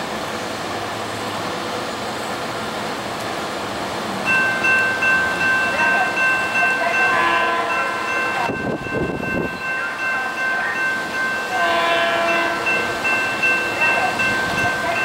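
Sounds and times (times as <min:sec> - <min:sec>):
railroad crossing bell ringing: 0:04.2 - 0:15.0
train horn blasts: 0:07.0 - 0:08.2, 0:11.5 - 0:12.8.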